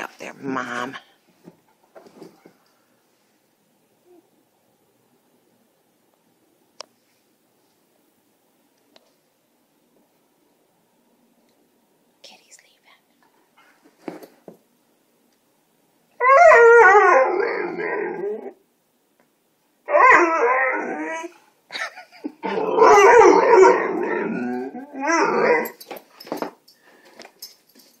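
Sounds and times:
small dog howling: 16.2s - 18.6s, 19.9s - 21.4s, 22.4s - 25.8s.

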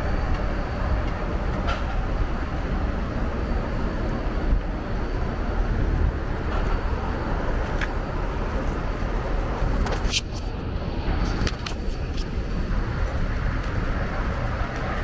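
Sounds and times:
city traffic rumble: 0.0s - 15.0s
pickup truck driving slowly: 10.6s - 15.0s.

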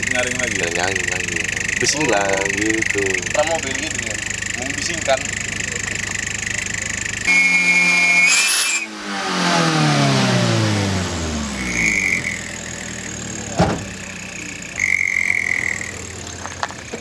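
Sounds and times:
engine revving: 0.0s - 17.0s
exhaust whistle high note: 7.3s - 9.0s, 11.5s - 12.7s, 14.2s - 16.0s.

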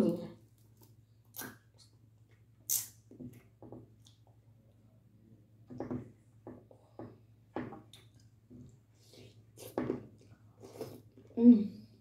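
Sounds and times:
wet mouth noises: 2.7s - 3.0s.

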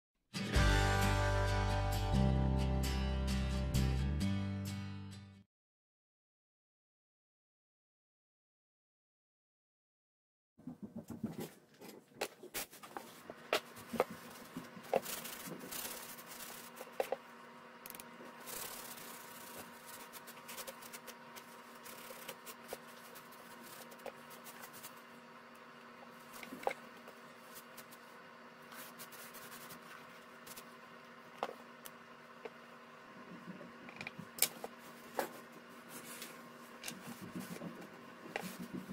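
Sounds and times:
faint steady hum: 10.7s - 38.9s.

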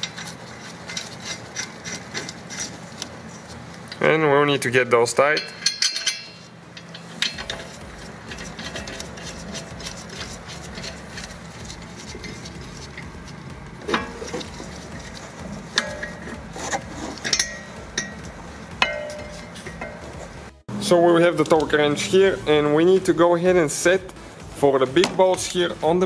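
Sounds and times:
metallic clinks and scraping: 0.0s - 2.9s, 5.4s - 20.5s
low steady hum: 0.0s - 26.0s.

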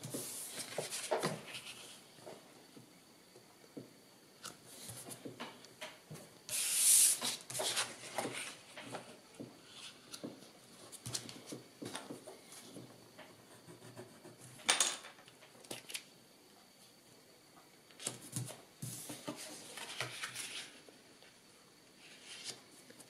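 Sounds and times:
paper sliding and rustling: 0.0s - 2.0s, 6.5s - 9.1s, 18.8s - 20.8s.

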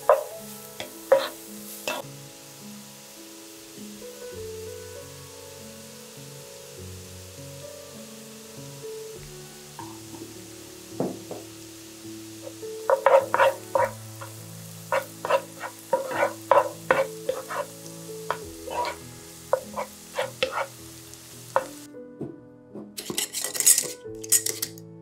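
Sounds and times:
wooden spatula scraping pan: 0.0s - 2.0s, 12.9s - 20.8s
faint frying sizzle: 0.0s - 21.9s.

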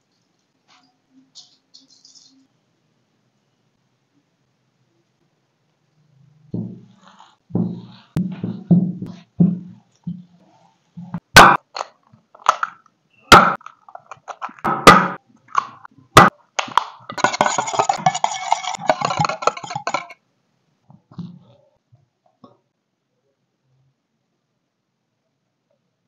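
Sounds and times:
eggs knocked against steel bowl: 14.6s - 20.2s
whisk beating eggs in steel bowl: 17.1s - 20.2s.

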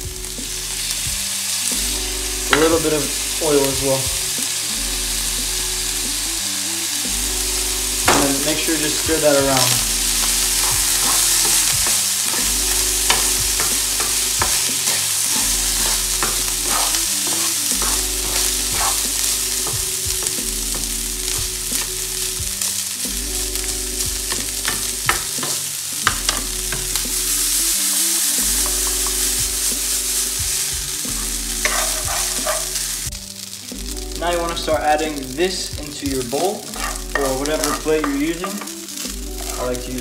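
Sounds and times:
rice sizzling in oil: 0.0s - 40.0s
metal spoon scraping a pan: 8.1s - 22.0s, 31.1s - 33.0s, 36.6s - 40.0s.

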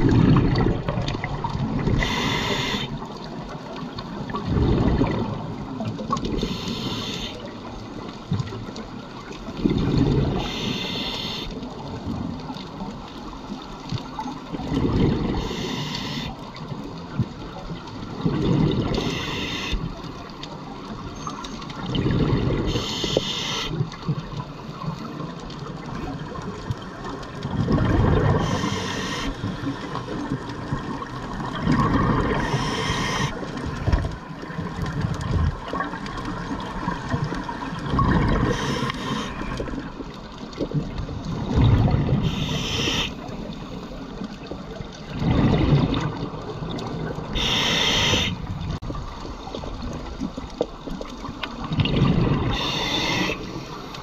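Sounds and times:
exhaust bubbles rumbling: 0.0s - 2.0s, 4.3s - 6.3s, 27.4s - 28.5s, 30.2s - 32.6s, 40.8s - 42.3s, 44.6s - 47.4s, 51.6s - 52.7s
underwater water noise: 0.0s - 54.0s
scuba regulator hissing: 32.4s - 33.4s, 42.3s - 43.2s, 47.4s - 48.4s, 52.6s - 53.4s.

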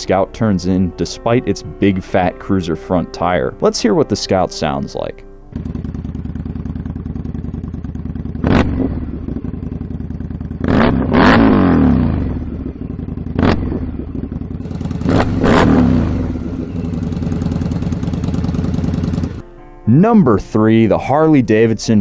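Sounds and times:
motorcycle engine idling and revving: 5.5s - 19.4s.

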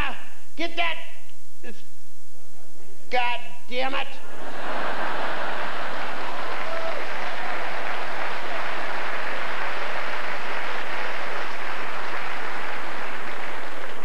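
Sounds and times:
audience applauding: 4.3s - 14.0s.

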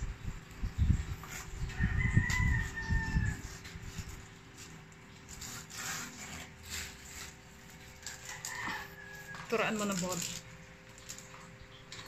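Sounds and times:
hand rubbing cardboard pad: 5.4s - 7.4s
plastic bag crinkling: 6.9s - 12.0s.

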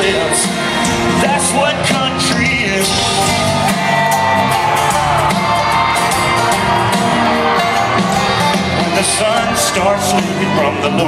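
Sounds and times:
crowd shouts: 0.0s - 11.0s
live country band playing: 0.0s - 11.0s
lead guitar bent notes: 0.9s - 11.0s.

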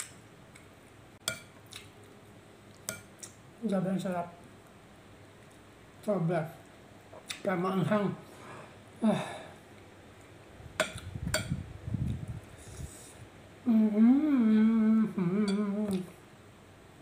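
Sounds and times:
man humming while chewing: 13.6s - 16.2s.

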